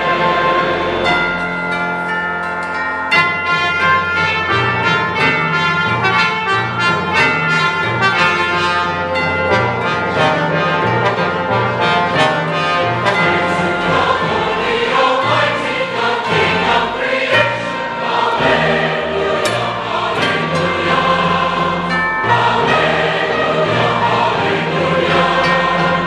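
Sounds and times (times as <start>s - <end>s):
choir singing: 0.0s - 1.6s, 3.3s - 26.0s
orchestra playing chords: 0.0s - 26.0s.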